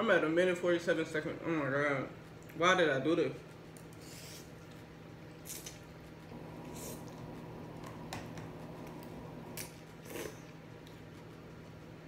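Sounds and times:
hissy eating mouth sounds: 2.1s - 2.6s, 3.3s - 12.0s
low steady hum: 4.6s - 12.0s.

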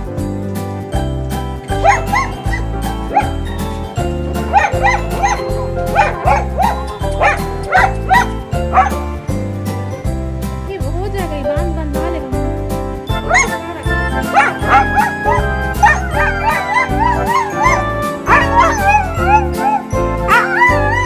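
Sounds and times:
dog yelping: 1.8s - 3.6s, 4.4s - 9.0s, 13.2s - 21.0s.

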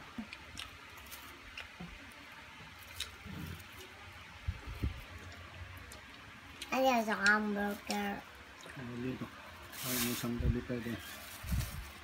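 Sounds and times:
plastic bag crinkling: 9.7s - 12.0s.

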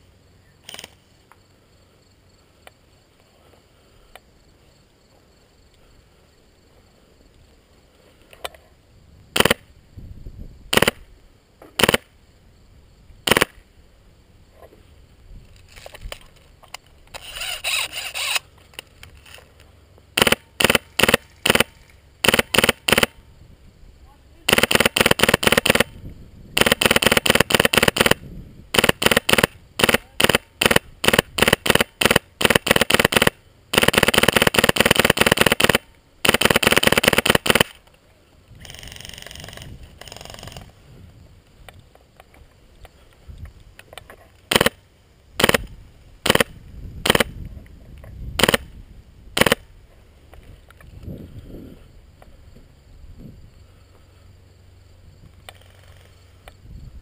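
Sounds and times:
airsoft gun firing: 9.4s - 9.7s, 10.7s - 11.0s, 11.8s - 12.1s, 13.2s - 13.6s, 20.2s - 23.2s, 24.5s - 26.0s, 26.6s - 37.8s, 44.5s - 44.8s, 45.4s - 47.4s, 48.4s - 48.7s, 49.4s - 49.7s.

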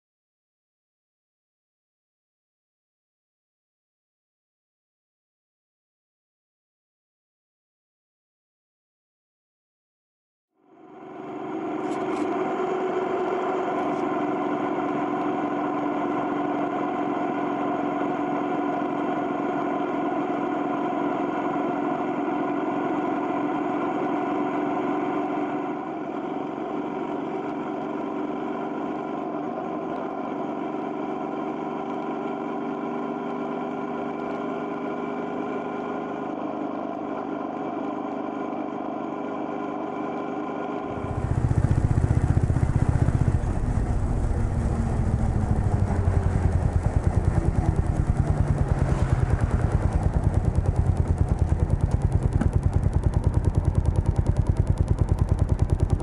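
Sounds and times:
motorcycle engine cruising: 40.9s - 56.0s.

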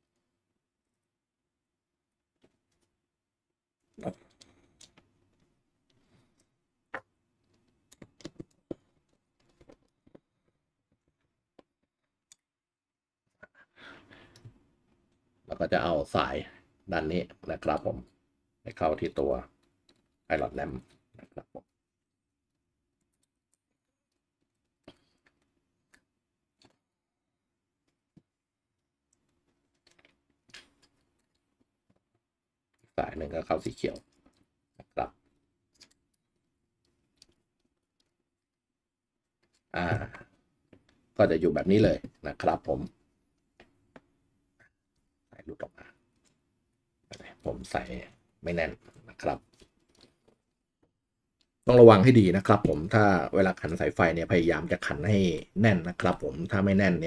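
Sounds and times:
wires clicking and tapping: 3.8s - 12.6s, 19.5s - 38.6s, 39.2s - 46.5s, 48.8s - 51.7s.

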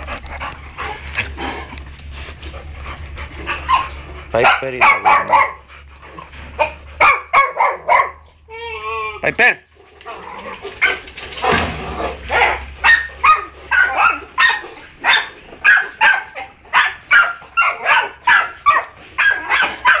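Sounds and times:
dog barking: 3.7s - 5.7s, 6.6s - 8.3s, 12.3s - 20.0s.

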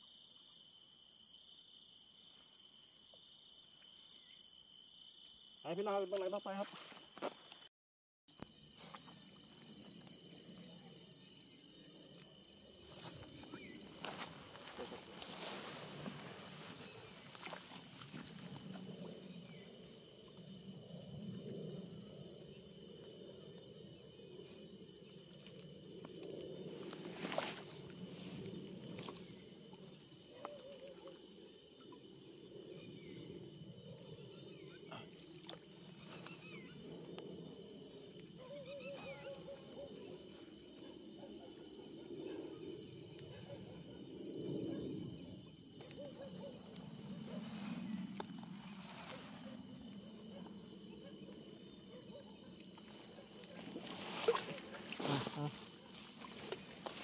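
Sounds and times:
insects trilling: 0.0s - 7.7s, 8.3s - 57.0s
frogs calling: 34.0s - 40.9s, 50.1s - 57.0s.

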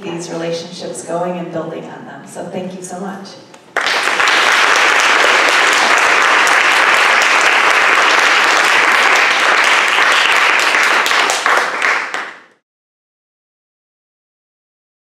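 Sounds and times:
audience applauding: 3.7s - 12.6s.

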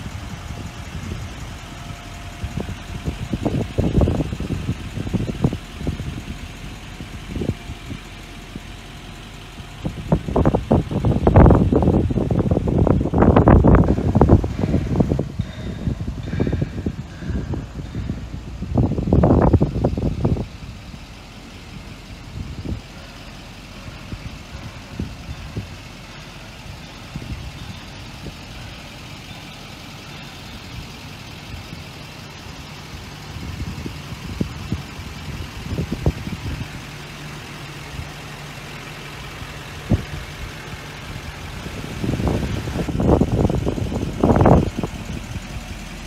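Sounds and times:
diesel truck engine idling: 0.0s - 46.0s
short low bumps: 9.6s - 28.9s.

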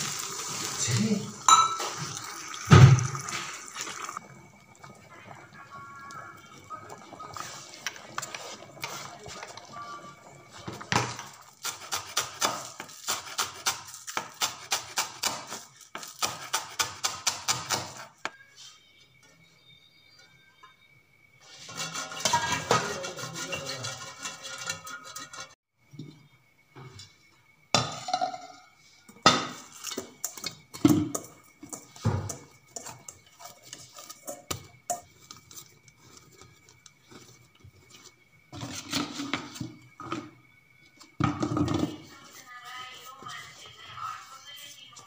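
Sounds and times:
metal kitchenware clattering: 1.5s - 3.3s, 21.5s - 25.6s, 27.8s - 35.2s.

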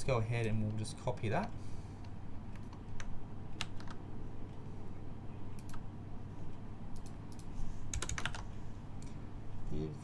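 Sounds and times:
faint low hum: 0.0s - 10.0s
keyboard typing: 2.5s - 4.0s, 5.5s - 5.8s, 6.9s - 9.1s.

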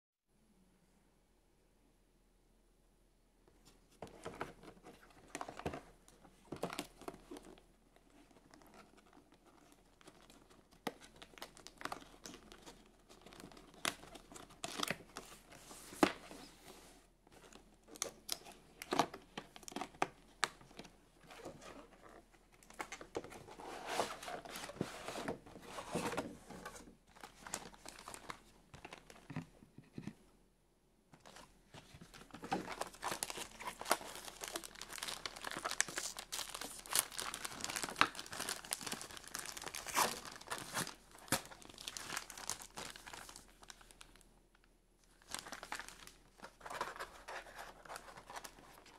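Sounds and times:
cardboard box crinkling and tearing: 32.1s - 43.8s, 45.2s - 48.9s.

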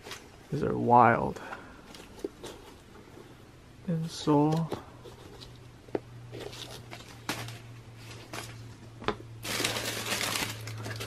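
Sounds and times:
tissue paper rustling: 9.4s - 11.0s.

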